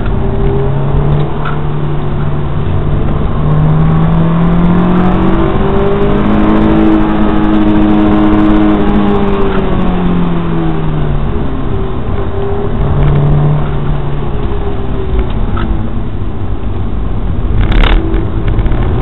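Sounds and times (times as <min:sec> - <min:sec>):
car engine accelerating: 0:00.0 - 0:19.0.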